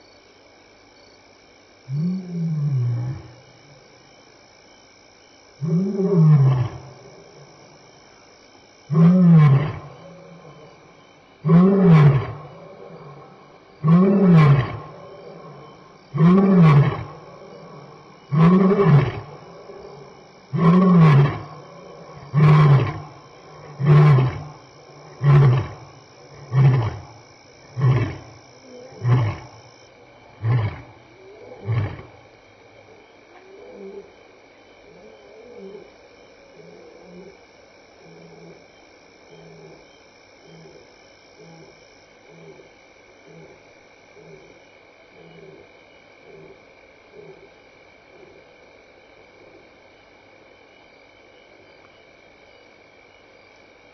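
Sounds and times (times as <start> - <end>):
lion roaring: 8.9 - 10.8, 11.5 - 27.1, 27.8 - 29.6, 30.3 - 32.2.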